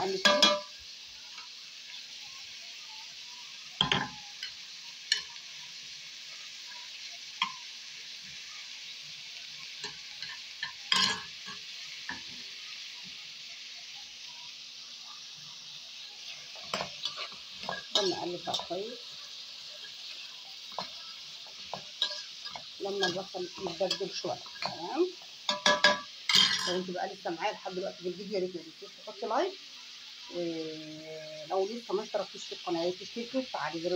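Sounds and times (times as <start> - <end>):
onions sizzling in hot oil: 0.0 - 33.9.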